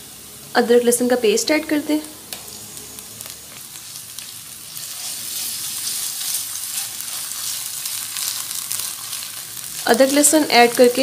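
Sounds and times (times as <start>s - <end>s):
onions sizzling in hot oil: 0.0s - 11.0s
spatula stirring in pan: 3.2s - 11.0s.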